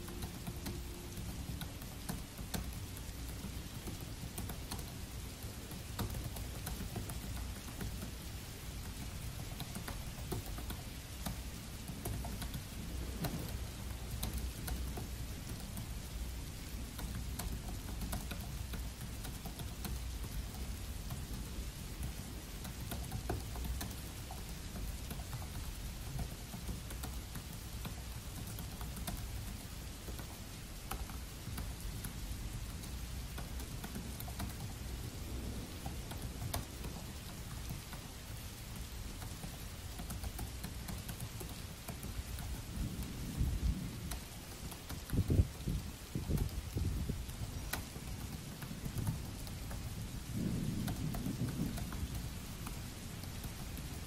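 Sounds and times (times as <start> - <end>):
laptop keyboard typing: 0.0 - 54.0
steady rain: 0.0 - 54.0.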